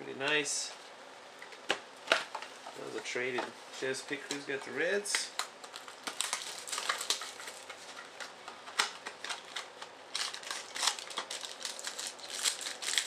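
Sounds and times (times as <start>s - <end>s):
wrapper crinkling as torn open: 5.3s - 13.0s.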